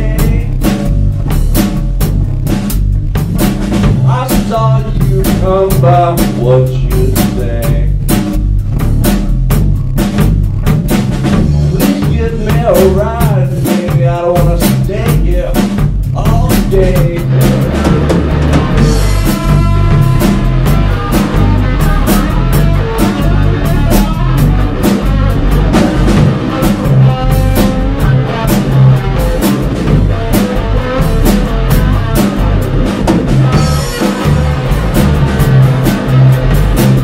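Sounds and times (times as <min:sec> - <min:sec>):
blues rock band playing: 0:00.0 - 0:37.0
electric guitar lines: 0:16.7 - 0:37.0.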